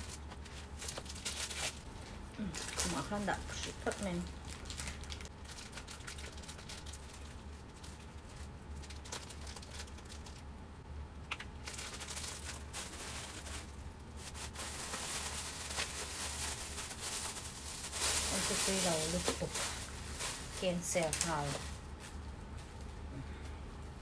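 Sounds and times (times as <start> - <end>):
plastic bags crinkling: 0.0 - 10.4, 11.3 - 23.0.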